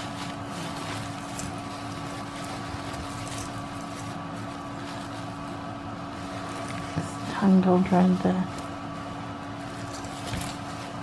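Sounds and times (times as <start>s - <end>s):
jewellery rustling and clinking: 0.0s - 7.4s
steady mechanical hum: 0.0s - 11.0s.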